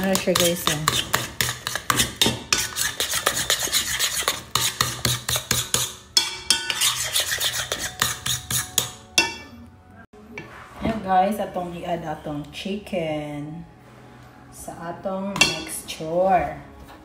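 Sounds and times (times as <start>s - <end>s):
spoon stirring batter in bowl: 0.0s - 9.5s.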